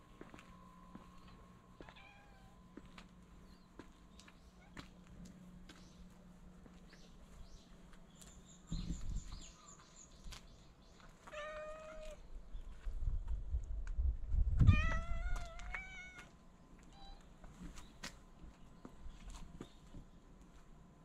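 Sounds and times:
cat meowing: 0:01.8 - 0:02.6, 0:11.3 - 0:12.2, 0:14.7 - 0:16.3.

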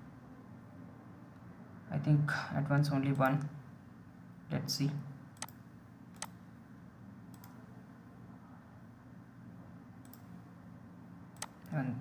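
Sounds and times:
computer mouse clicks: 0:05.4 - 0:06.4, 0:07.3 - 0:07.6, 0:10.0 - 0:10.4, 0:11.4 - 0:11.8.

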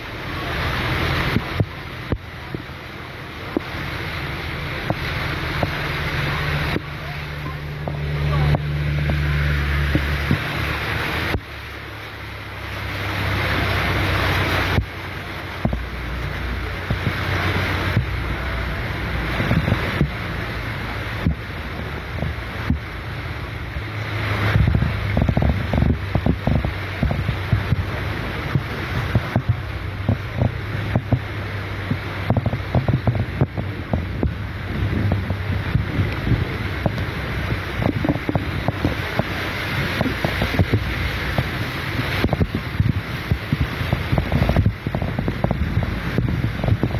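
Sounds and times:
low engine hum: 0:00.0 - 0:46.9
water sloshing around tyres: 0:00.0 - 0:46.9
wind noise on microphone: 0:00.0 - 0:46.9.

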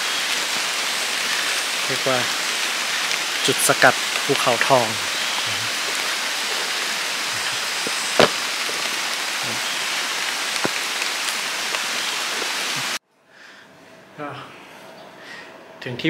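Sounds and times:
rain falling on leaves: 0:00.0 - 0:13.0
raindrop taps: 0:02.2 - 0:12.9.

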